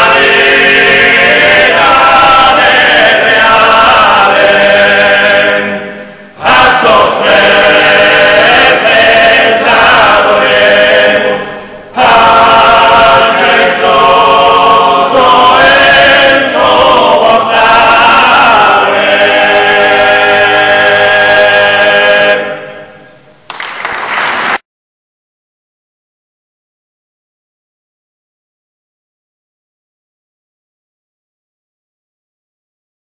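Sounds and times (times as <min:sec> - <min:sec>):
men singing in close harmony: 0:00.0 - 0:23.0.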